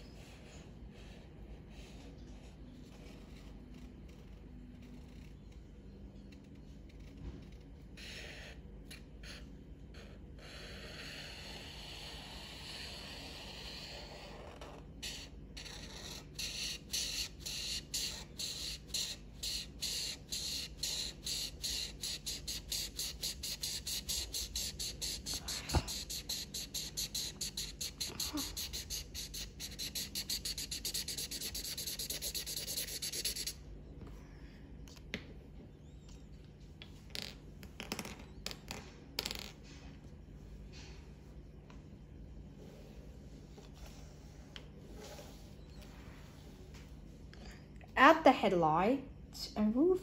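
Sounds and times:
marker scribbling on paper: 8.0 - 33.6.

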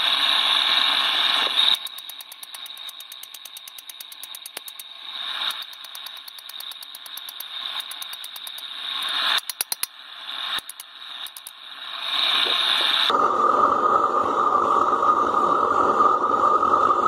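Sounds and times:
forge burning hiss: 0.0 - 17.0
hammer strikes on steel: 5.5 - 9.9.

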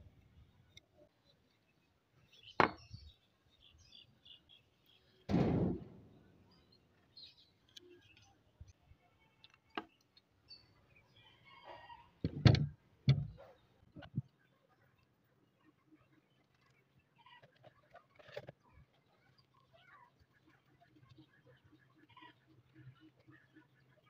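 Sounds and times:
plastic parts knocking on wooden table: 12.2 - 13.4.

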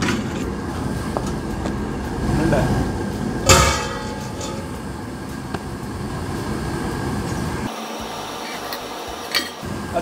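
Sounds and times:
burner flame rumble: 0.0 - 7.7.

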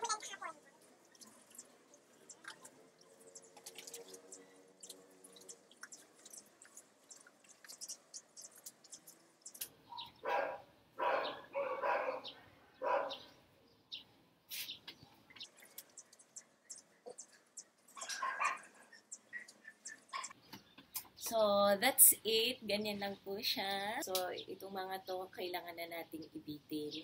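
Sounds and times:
water dripping and splashing: 0.0 - 9.8, 15.3 - 20.3.

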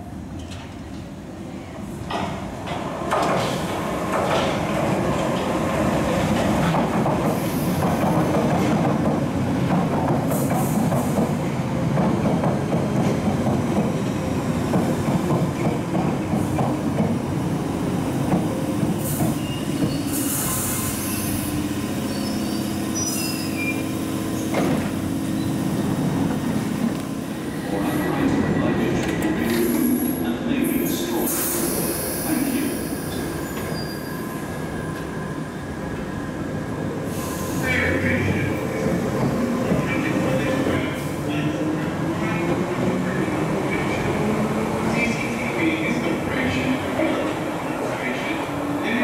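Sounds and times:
train wheels rumbling on rail: 0.2 - 49.0
wheel squeal: 19.3 - 20.3, 20.9 - 24.5, 32.9 - 34.2.

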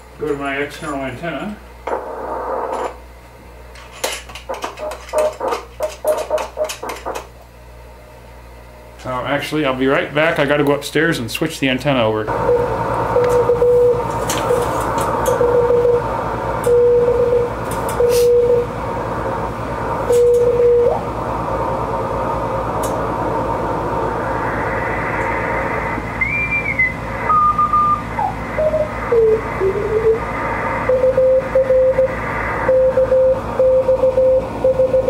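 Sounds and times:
radio band hiss with crackles: 0.2 - 3.1, 4.3 - 7.3, 20.8 - 34.6
morse code tone: 12.3 - 14.7, 15.3 - 18.7, 20.1 - 21.0, 26.3 - 35.0
radio signals sweeping in pitch: 23.2 - 35.0.

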